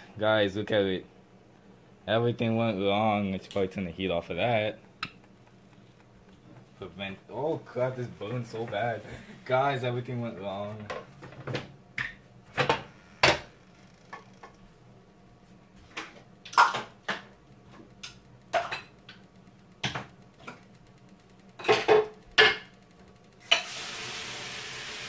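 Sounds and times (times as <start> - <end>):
sizzling hiss: 23.4 - 25.0.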